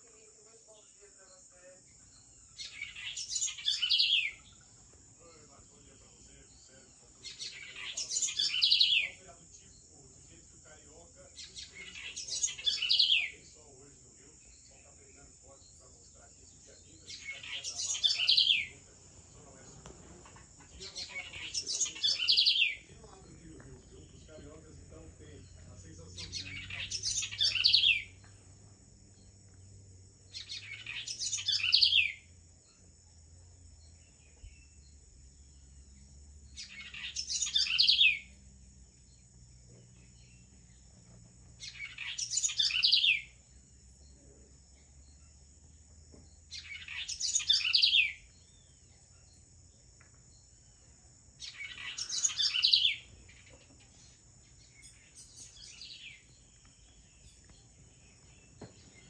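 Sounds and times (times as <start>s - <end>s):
songbird singing: 0.0s - 59.0s.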